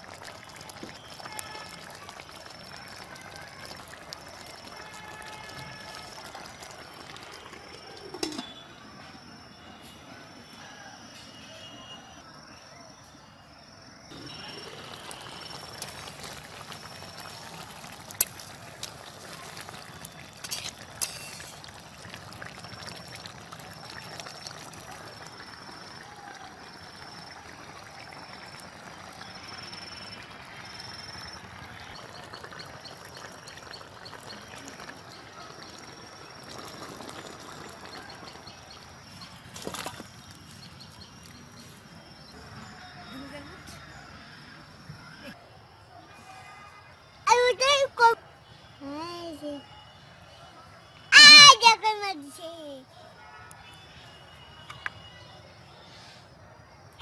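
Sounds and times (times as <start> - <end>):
curry sloshing and pouring: 30.7 - 40.6.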